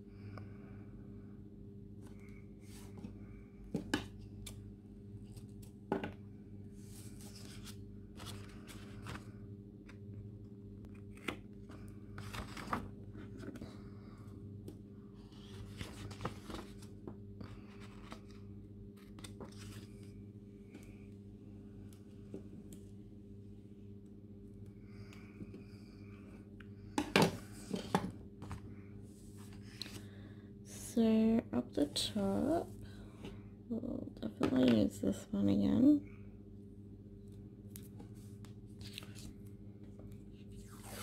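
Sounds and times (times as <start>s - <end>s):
low electrical hum: 0.0s - 41.0s
paper rustling: 7.0s - 9.3s, 10.9s - 13.6s, 15.2s - 18.4s, 19.0s - 20.0s.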